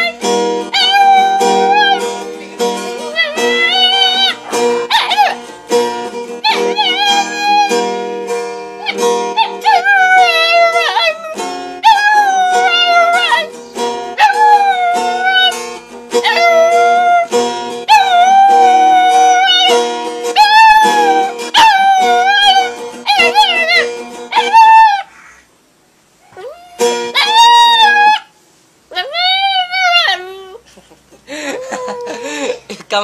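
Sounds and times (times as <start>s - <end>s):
dog howling: 0.0s - 2.2s, 3.0s - 5.5s, 6.4s - 8.0s, 8.8s - 13.5s, 14.2s - 15.6s, 16.2s - 17.3s, 17.9s - 19.8s, 20.4s - 25.2s, 26.3s - 30.6s, 31.5s - 32.4s
strummed acoustic guitar: 0.0s - 24.8s, 26.8s - 28.1s.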